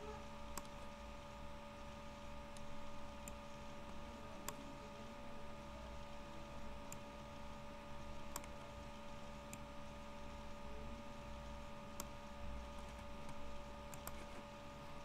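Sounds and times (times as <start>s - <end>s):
faint electrical hum: 0.0s - 15.0s
computer mouse clicks: 0.5s - 0.9s, 2.5s - 4.7s, 6.8s - 7.1s, 8.2s - 8.8s, 9.5s - 9.7s, 11.9s - 14.5s.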